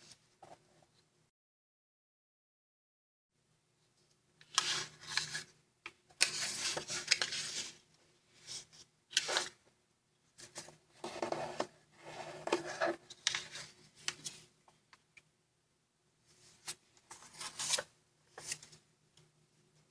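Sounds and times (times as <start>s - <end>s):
paper being folded and creased: 4.4s - 5.5s, 6.2s - 7.8s, 8.4s - 9.6s, 10.4s - 14.4s, 16.6s - 18.8s.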